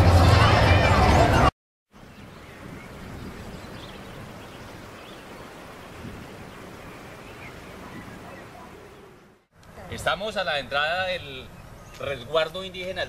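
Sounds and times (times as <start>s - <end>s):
wind rushing: 2.1s - 9.5s.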